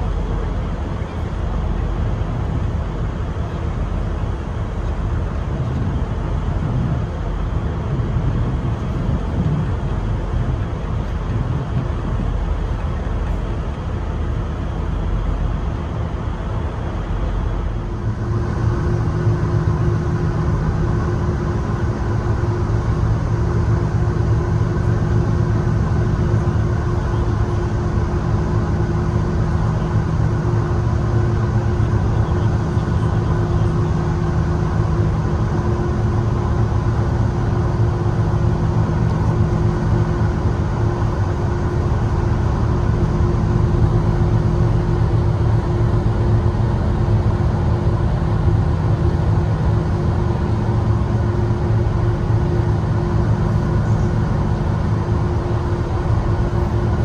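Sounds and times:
vehicle engine rumble: 0:00.0 - 0:57.0.

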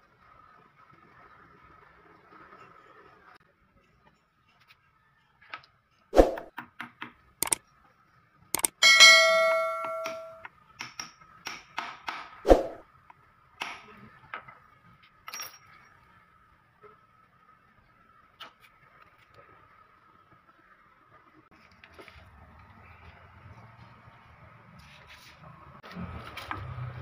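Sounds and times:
metal ringing: 0:08.6 - 0:10.4
hammer striking steel pipe: 0:08.6 - 0:11.6.

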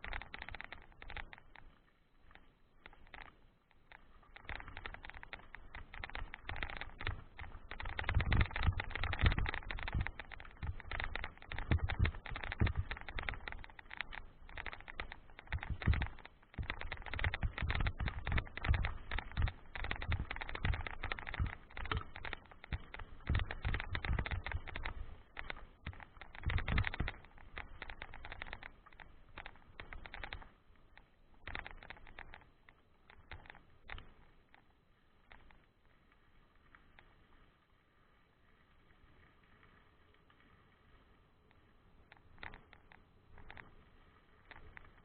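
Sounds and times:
bike rattling over bumps: 0:00.0 - 0:30.6.

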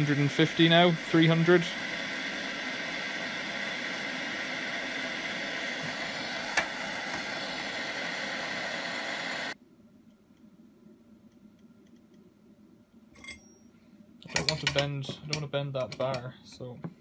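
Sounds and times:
blowtorch flame hissing: 0:00.0 - 0:09.6.

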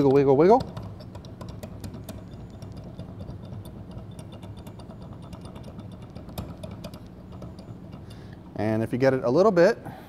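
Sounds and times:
metal gearbox clicks and knocks: 0:00.0 - 0:08.2
steady low hum: 0:00.0 - 0:10.0.

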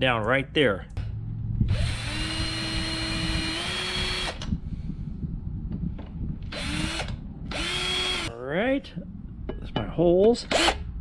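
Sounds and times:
cordless drill boring metal: 0:01.7 - 0:04.5, 0:06.5 - 0:08.3, 0:10.5 - 0:10.8.

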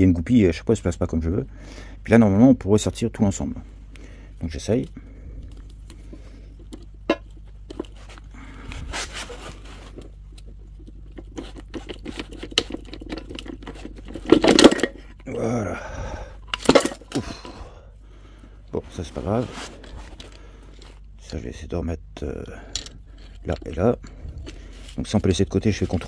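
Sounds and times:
gears clicking and scraping on casing: 0:09.3 - 0:15.2, 0:22.6 - 0:26.0.

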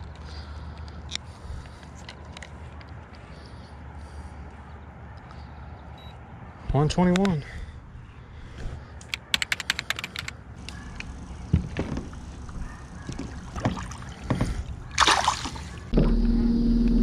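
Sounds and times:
quick run of clicks: 0:09.0 - 0:11.1
boat motor humming: 0:10.6 - 0:17.0.

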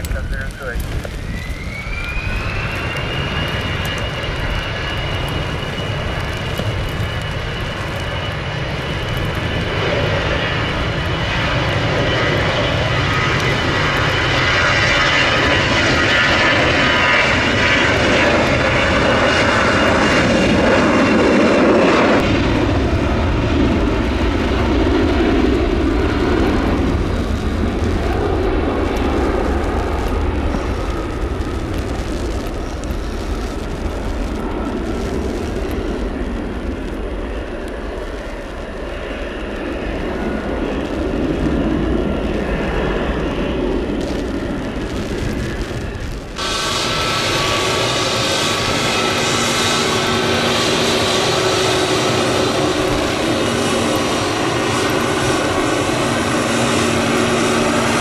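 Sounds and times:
jet engines rushing and whining: 0:00.0 - 0:58.0.

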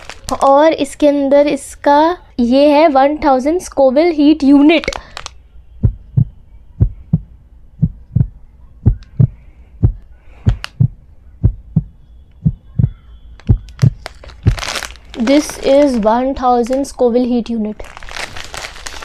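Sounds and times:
heartbeat thumps: 0:05.8 - 0:14.7.

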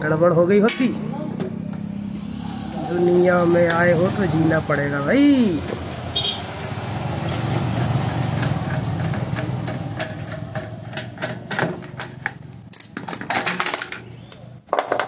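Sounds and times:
metal clicks and taps: 0:08.0 - 0:14.0.

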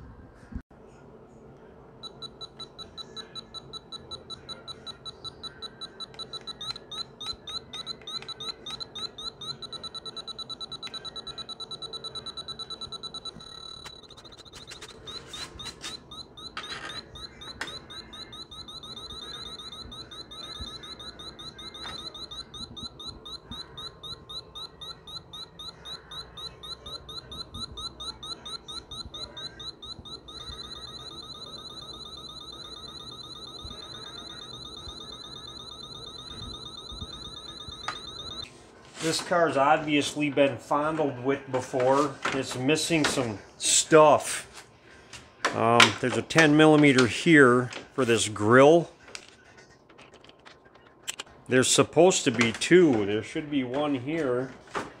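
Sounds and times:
leak detector beeping: 0:02.0 - 0:38.5.

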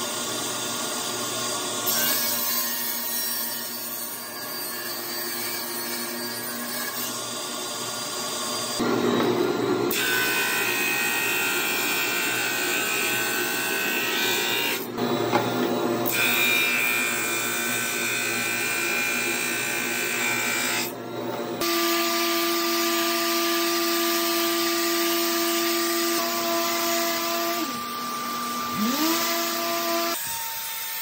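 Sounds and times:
table saw cutting wood: 0:00.0 - 0:31.0
drum sander whine: 0:07.5 - 0:16.2.

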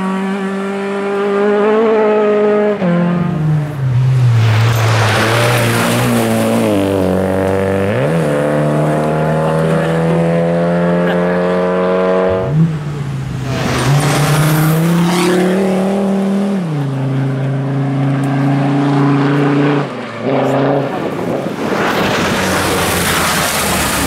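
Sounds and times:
rally car engine accelerating: 0:00.0 - 0:24.0
car passing on gravel: 0:04.0 - 0:08.1, 0:20.9 - 0:24.0.

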